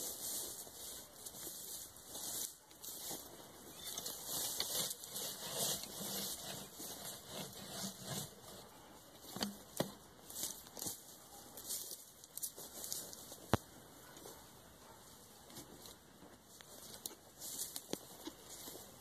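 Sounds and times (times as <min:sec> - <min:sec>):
wood rubbing and scraping: 0:00.0 - 0:11.9.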